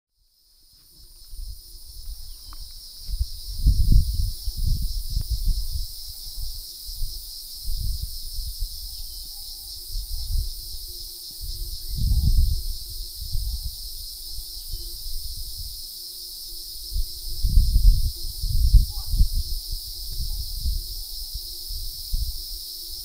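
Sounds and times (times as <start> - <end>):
cicadas droning: 0.1 - 23.0
low rumbling gusts: 1.4 - 9.3, 9.9 - 15.8.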